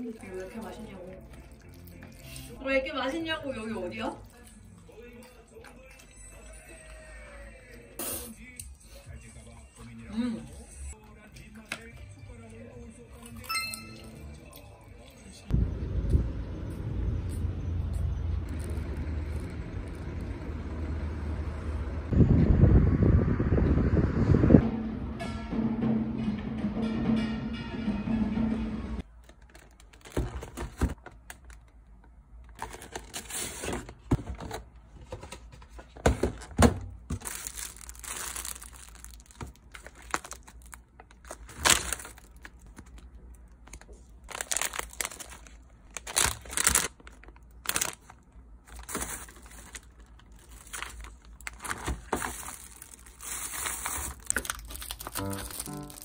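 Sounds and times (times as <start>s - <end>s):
plastic packaging crinkling: 29.2s - 31.8s, 37.1s - 56.0s.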